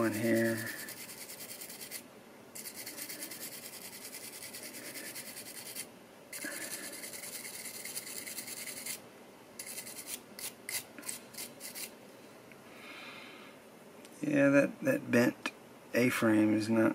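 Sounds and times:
wire brush scrubbing metal: 0:00.0 - 0:02.0, 0:02.6 - 0:09.0, 0:09.6 - 0:11.9.

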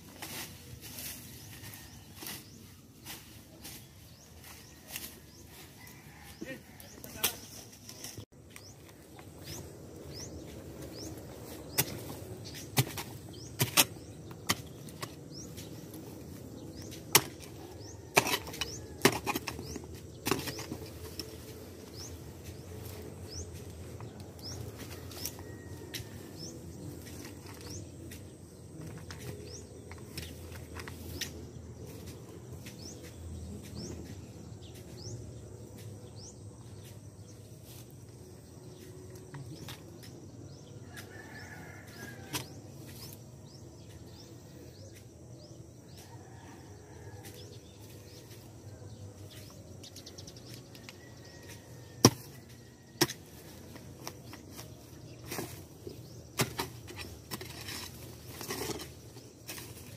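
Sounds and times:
digging scrapes and rustles: 0:00.0 - 0:59.9
hoe striking ground: 0:11.0 - 0:16.0, 0:16.7 - 0:21.4, 0:41.9 - 0:44.2, 0:51.4 - 0:59.9.

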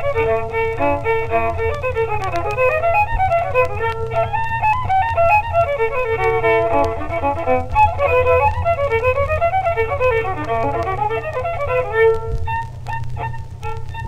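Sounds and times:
fast instrumental fiddle tune: 0:00.0 - 0:14.0.

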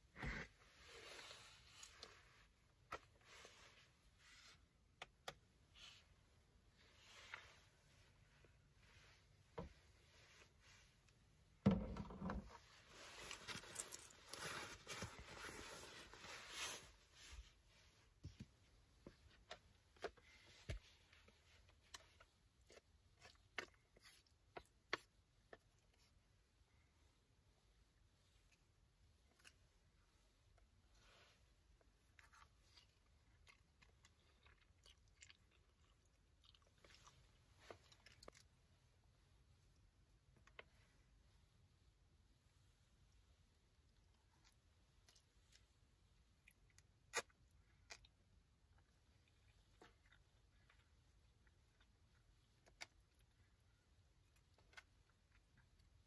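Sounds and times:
fabric rustling: 0:12.3 - 0:18.2
soft chewing: 0:16.8 - 0:41.3, 0:42.5 - 0:56.0.

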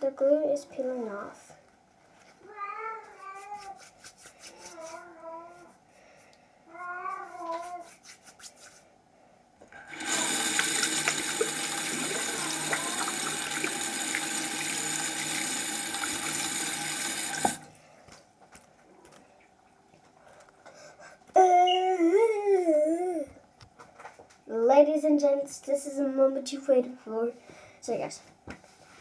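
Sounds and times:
tap running into sink: 0:09.9 - 0:17.6.

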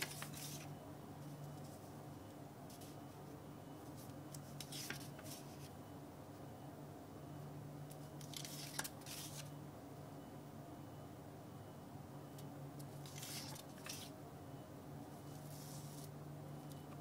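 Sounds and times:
paper strips rustling: 0:00.0 - 0:00.7, 0:03.9 - 0:05.7, 0:08.2 - 0:09.5, 0:13.0 - 0:14.1.

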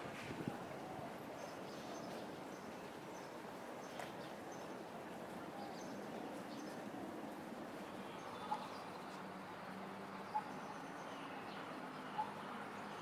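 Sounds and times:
distant city traffic hum: 0:00.0 - 0:13.0
small birds chirping: 0:07.8 - 0:13.0.

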